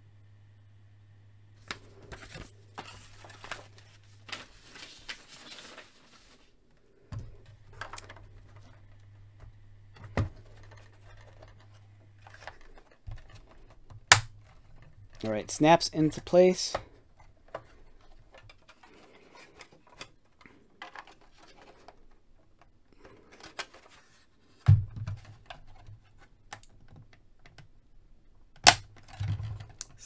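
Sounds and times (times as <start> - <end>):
paper sheet rustling: 1.6 - 6.6
plastic part snapping into place: 28.6 - 29.9.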